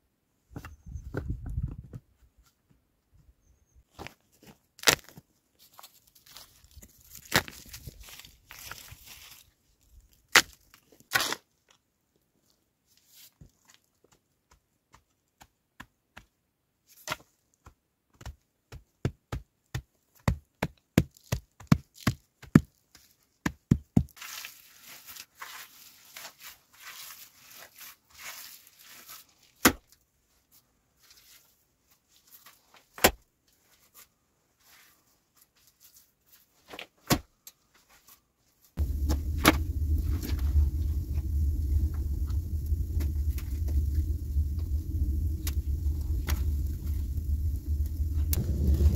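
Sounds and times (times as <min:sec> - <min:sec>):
loud low rumble: 0:38.8 - 0:48.9
soil being scraped: 0:38.8 - 0:48.9.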